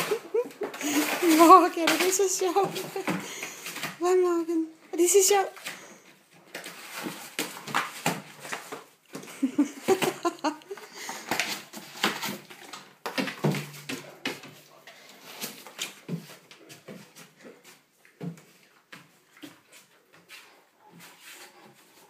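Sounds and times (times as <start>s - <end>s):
dog tearing cardboard: 6.5s - 8.9s, 11.2s - 14.4s.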